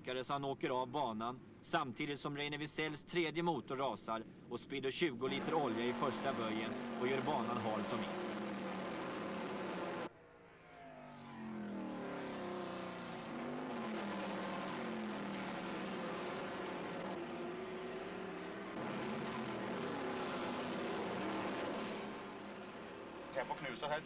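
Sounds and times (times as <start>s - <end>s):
race car engines: 5.1s - 24.0s.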